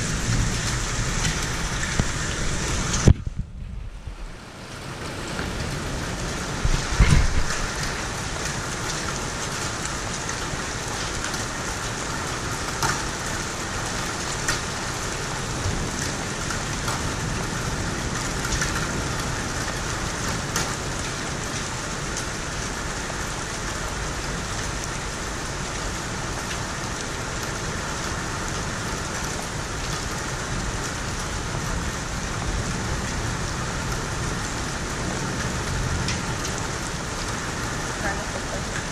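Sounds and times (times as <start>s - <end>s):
hailstones ticking on hard surfaces: 0.0s - 3.2s, 5.2s - 38.9s
low rumble: 0.0s - 4.5s
heavy rain and hail: 0.0s - 38.9s.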